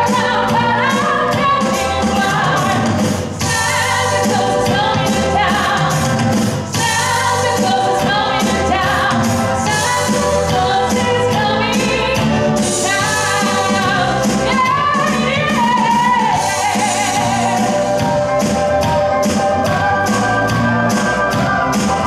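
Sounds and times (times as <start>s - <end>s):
woman singing into a microphone: 0.0s - 6.2s, 6.8s - 17.8s
pop backing track with beat: 0.0s - 22.0s.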